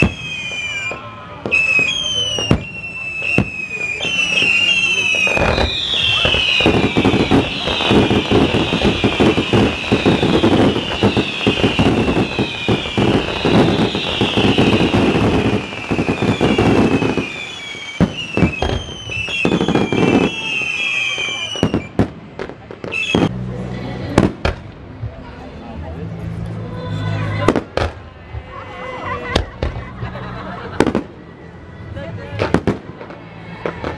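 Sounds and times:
firework whistles sliding down: 0.0 - 22.0, 22.8 - 23.3
fireworks crackling and banging: 0.0 - 26.5, 27.1 - 33.9.

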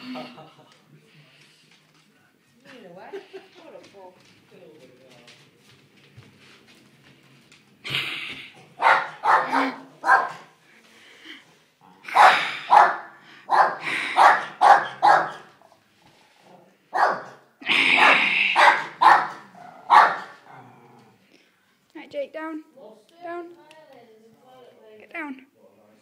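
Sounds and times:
dogs barking: 8.7 - 10.6, 12.0 - 15.7, 16.9 - 20.6.

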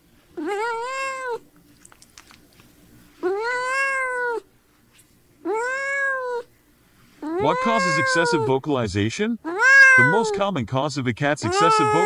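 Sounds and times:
cat meowing: 0.4 - 1.4, 3.2 - 4.4, 5.4 - 6.5, 7.2 - 8.5, 9.4 - 10.4, 11.4 - 12.0.

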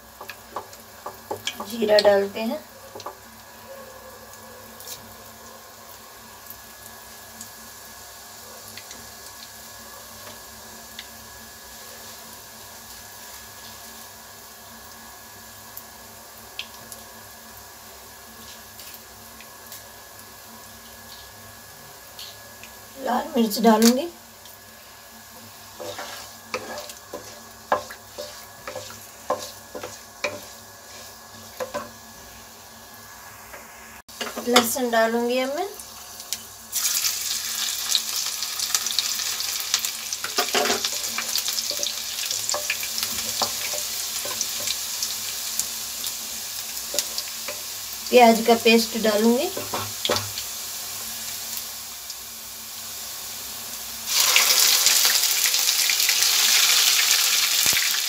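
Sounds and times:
seeds sizzling in hot oil: 0.0 - 58.0
wooden spatula scraping a pan: 25.7 - 32.0.

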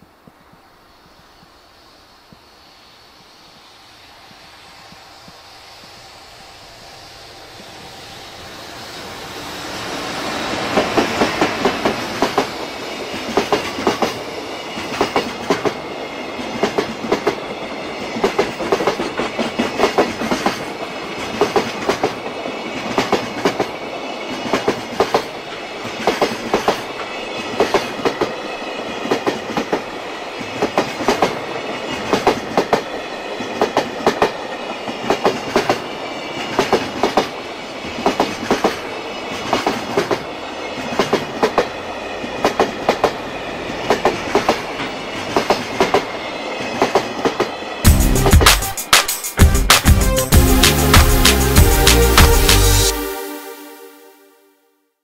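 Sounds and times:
rumble of wheels on rail: 0.0 - 47.9.

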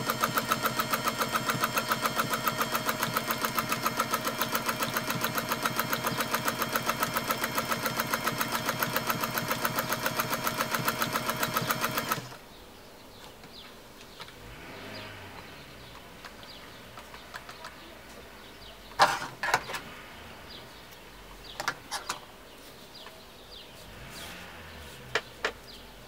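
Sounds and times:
sewing machine stitching: 0.0 - 12.4.

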